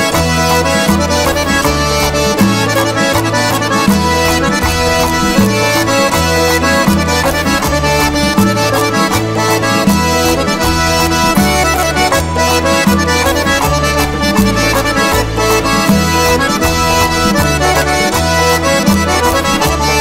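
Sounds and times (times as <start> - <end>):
accordion playing: 0.0 - 20.0
percussion beat: 0.0 - 20.0
repeating bass line: 0.0 - 20.0.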